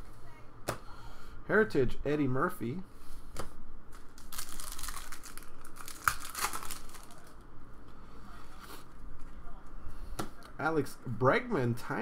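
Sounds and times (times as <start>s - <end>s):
cards rustling: 3.9s - 7.4s
foil wrapper tearing and crinkling: 4.2s - 7.4s.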